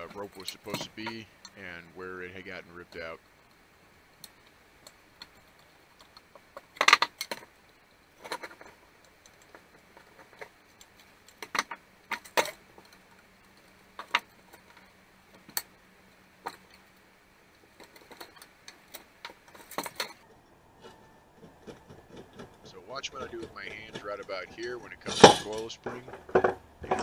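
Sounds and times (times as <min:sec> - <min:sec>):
metal parts clinking: 0:00.0 - 0:01.6, 0:17.8 - 0:20.2.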